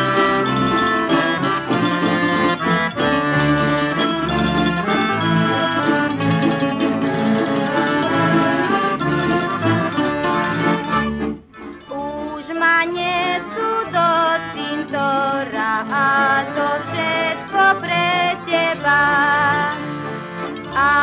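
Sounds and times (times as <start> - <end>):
bass line: 0.0 - 12.4
accordion: 0.0 - 21.0
strings: 0.0 - 21.0.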